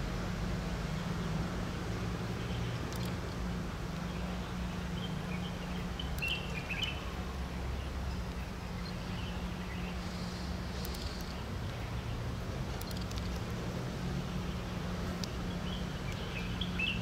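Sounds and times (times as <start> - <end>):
low mechanical hum: 0.0 - 17.0
bird chirps: 4.9 - 7.1, 15.5 - 17.0.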